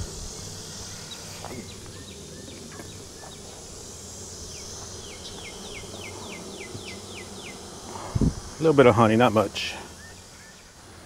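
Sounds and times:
honeybees buzzing: 0:00.0 - 0:11.0.

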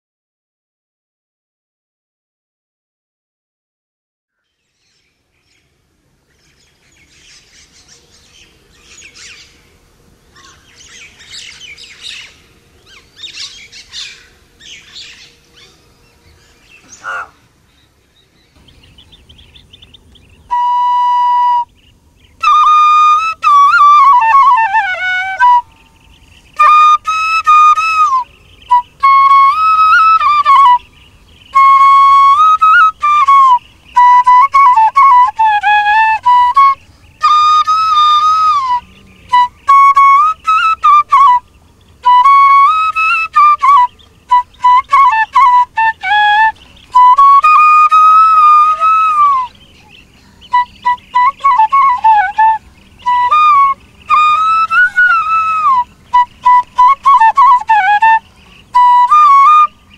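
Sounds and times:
small birds chirping: 0:04.3 - 0:59.9
bamboo flute melody: 0:20.4 - 0:59.9.

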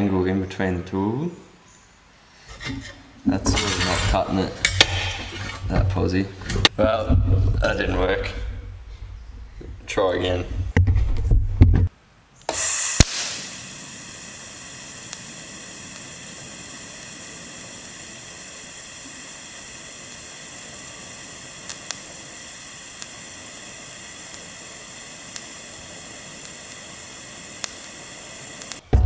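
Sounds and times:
welding arc hiss and whine: 0:02.6 - 0:10.8, 0:12.4 - 0:29.0
welding arc crackle: 0:12.4 - 0:29.0.

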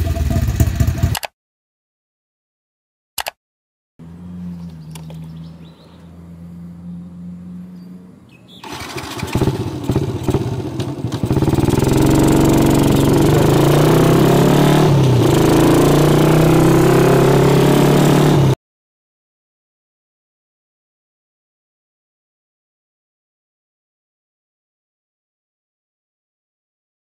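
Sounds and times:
moped engine idling and revving: 0:00.0 - 0:01.3, 0:04.0 - 0:18.6.

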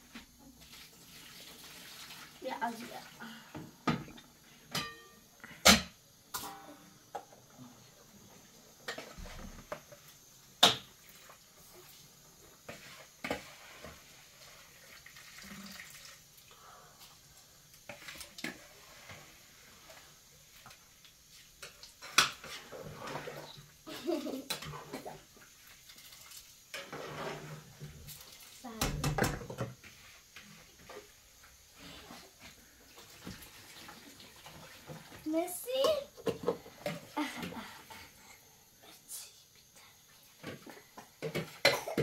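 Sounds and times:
running water: 0:00.4 - 0:03.5, 0:11.0 - 0:31.1, 0:31.8 - 0:37.9
dishes and utensils clinking: 0:04.7 - 0:06.7.

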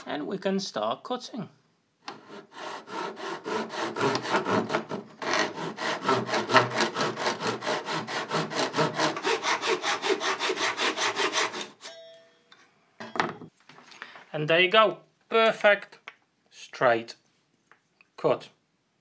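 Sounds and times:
hand saw cutting wood: 0:02.1 - 0:11.8.

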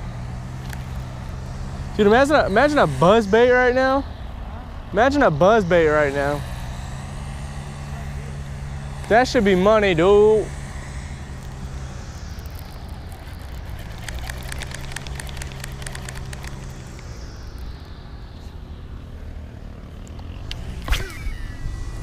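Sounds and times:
vehicle passing by: 0:00.0 - 0:22.0
rapid faint clicks: 0:00.6 - 0:01.4, 0:11.4 - 0:18.0.

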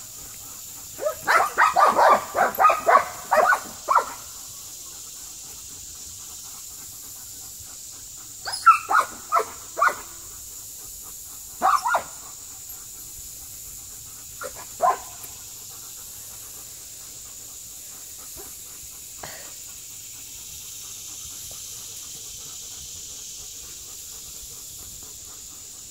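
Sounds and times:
dog barking: 0:01.0 - 0:04.2, 0:08.5 - 0:10.1, 0:11.6 - 0:12.2, 0:14.4 - 0:15.2.

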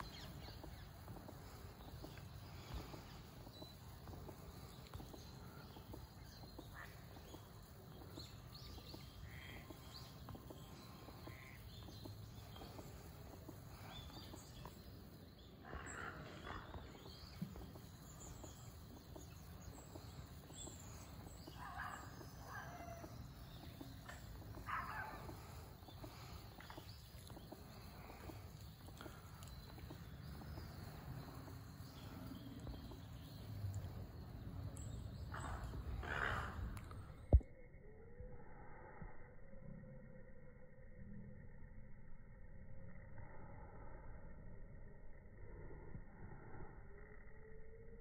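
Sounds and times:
short bird calls: 0:00.0 - 0:34.1, 0:35.0 - 0:37.3.

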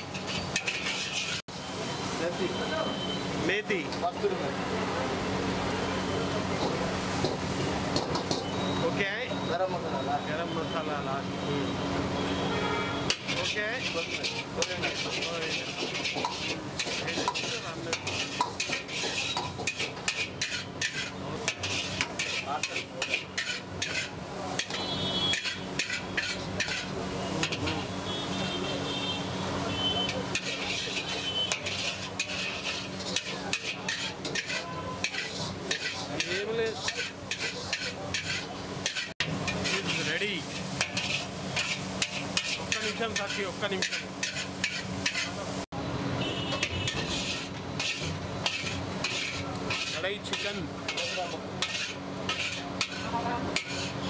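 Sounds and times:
metal ladle scraping pan: 0:00.0 - 0:01.4, 0:12.6 - 0:28.4, 0:29.6 - 0:45.5, 0:46.5 - 0:54.0
frying sizzle: 0:00.0 - 0:54.0.

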